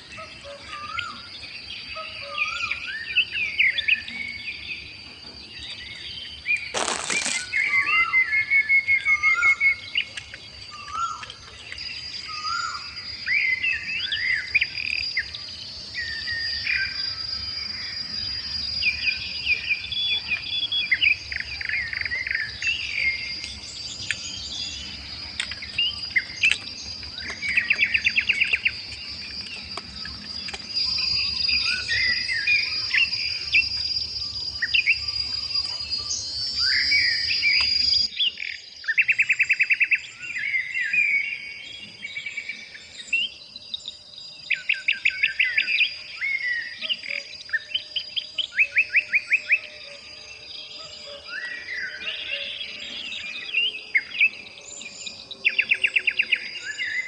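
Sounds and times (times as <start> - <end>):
forest birds calling: 0.0 - 57.0
high insect drone: 0.0 - 57.0
background hiss: 6.7 - 7.7.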